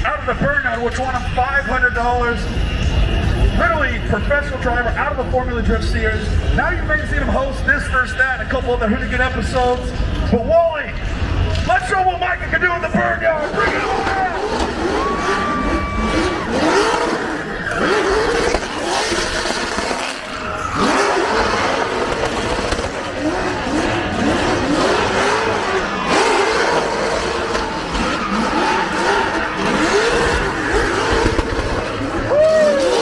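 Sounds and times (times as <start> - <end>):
car engine revving: 11.0 - 33.0.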